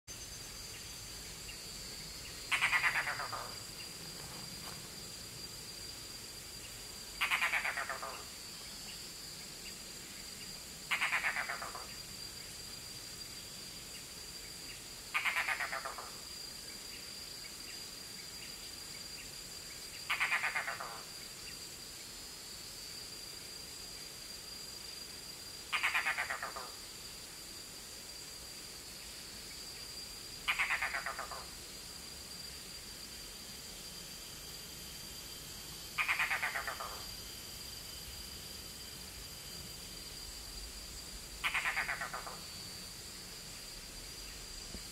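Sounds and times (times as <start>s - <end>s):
high insect drone: 0.1s - 44.9s
bird giving harsh rattling calls: 2.5s - 3.6s, 7.2s - 8.2s, 10.9s - 11.9s, 15.2s - 16.0s, 20.1s - 21.0s, 25.7s - 26.6s, 30.5s - 31.5s, 35.9s - 37.0s, 41.4s - 42.4s.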